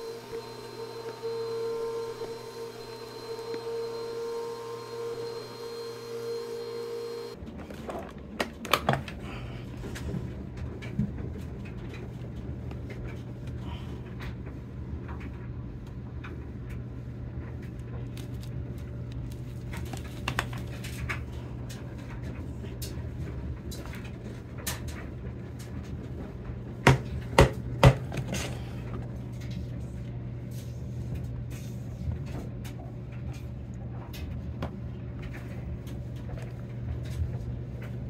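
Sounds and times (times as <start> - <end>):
vacuum cleaner motor whining: 0.0 - 8.0.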